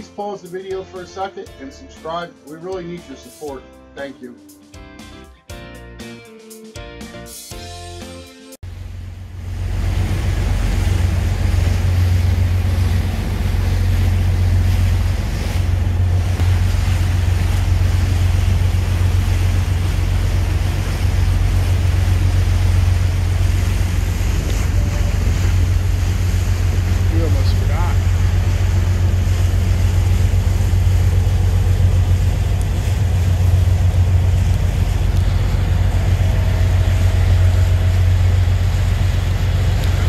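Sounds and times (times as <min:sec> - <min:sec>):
water rushing and splashing: 0:08.6 - 0:40.0.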